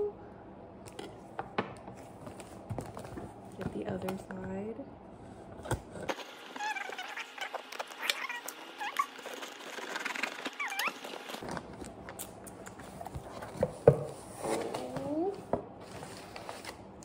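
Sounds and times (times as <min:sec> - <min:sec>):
short high squeaks: 0:06.5 - 0:11.2.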